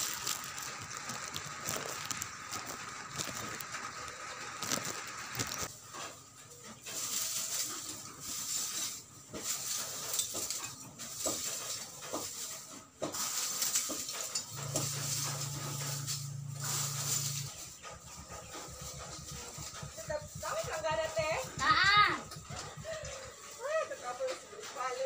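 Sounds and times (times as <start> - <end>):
charcoal lumps clattering: 0.0 - 25.0
plastic bag rustling: 0.0 - 25.0.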